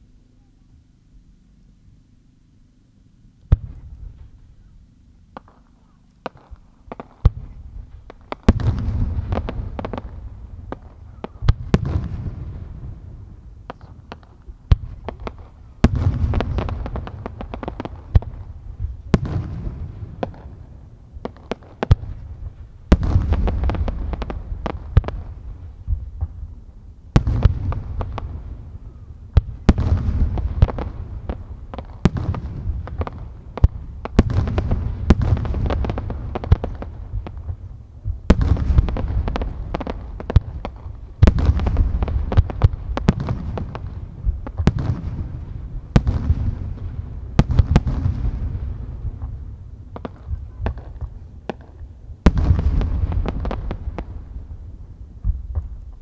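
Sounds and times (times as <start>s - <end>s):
small pops and crackles: 5.3s - 12.1s, 55.2s - 56.0s
firework shells booming: 5.3s - 56.0s.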